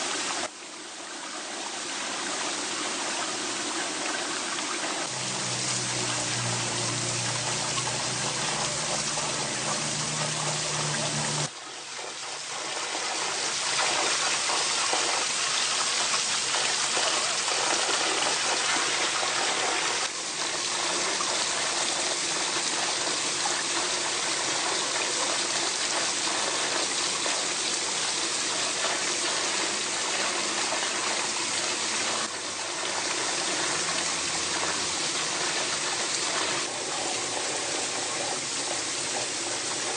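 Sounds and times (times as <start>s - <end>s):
forest stream rushing: 0.0s - 11.9s, 26.3s - 39.9s
low hum: 5.1s - 11.5s.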